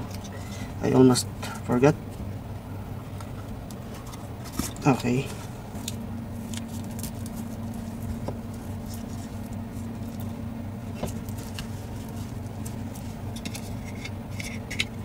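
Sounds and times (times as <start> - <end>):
low electrical hum: 0.0 - 15.0
small parts clicking and scraping: 11.0 - 15.0.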